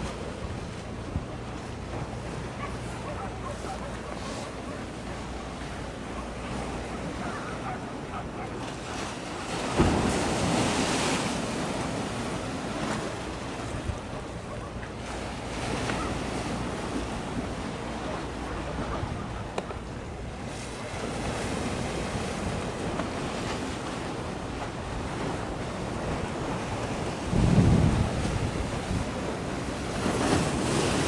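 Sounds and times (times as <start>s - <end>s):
water washing against breakwater: 0.0s - 31.0s
wind buffeting microphone: 24.4s - 31.0s.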